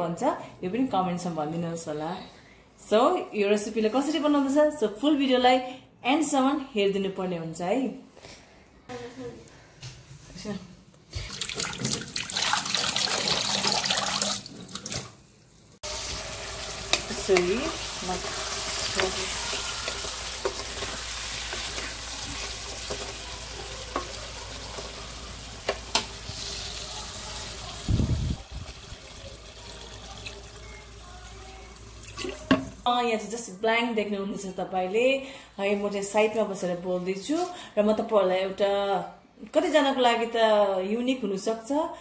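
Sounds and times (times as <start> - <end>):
water pouring into wok: 11.2 - 14.9, 15.8 - 26.9, 27.5 - 32.4
curry simmering: 15.8 - 32.8.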